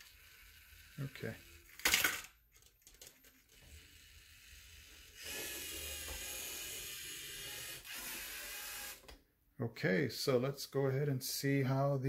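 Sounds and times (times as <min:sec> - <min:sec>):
robot motors whirring: 0:03.6 - 0:09.0.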